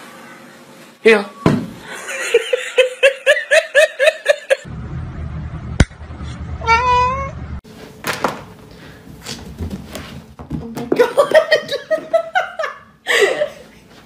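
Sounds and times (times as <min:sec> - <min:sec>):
person laughing: 0:01.8 - 0:04.7, 0:11.0 - 0:13.7
cat meow: 0:06.6 - 0:07.4.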